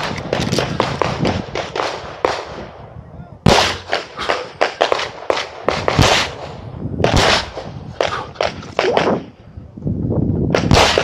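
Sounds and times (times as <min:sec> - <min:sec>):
pistol shots: 0:03.4 - 0:09.3, 0:10.6 - 0:11.0.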